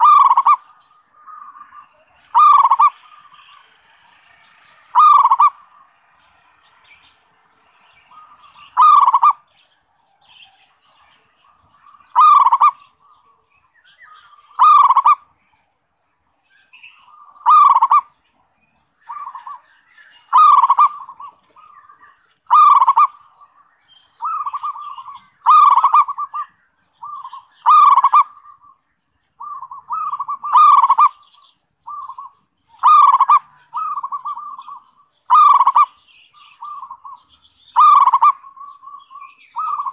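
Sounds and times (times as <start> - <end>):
dove cooing: 0.0 - 3.8, 4.9 - 5.9, 8.1 - 9.5, 11.2 - 13.4, 14.4 - 15.3, 17.1 - 18.1, 19.1 - 19.6, 20.2 - 23.6, 24.2 - 28.8, 29.4 - 39.9.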